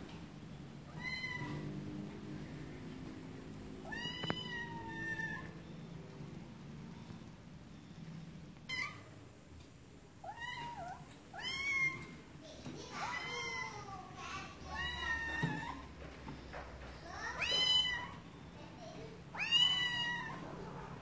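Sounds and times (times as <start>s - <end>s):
cat meowing: 0.9s - 1.7s, 3.8s - 5.6s, 19.4s - 20.4s.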